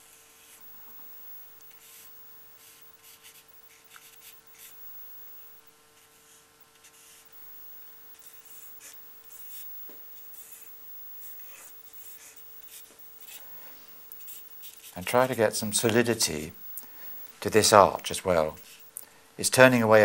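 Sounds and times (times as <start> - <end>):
charcoal scratching on paper: 1.4 - 13.4, 14.1 - 15.9, 18.0 - 18.8.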